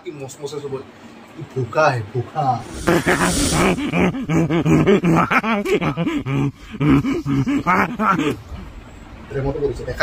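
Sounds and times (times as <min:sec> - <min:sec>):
man laughing loudly: 0:02.7 - 0:08.6.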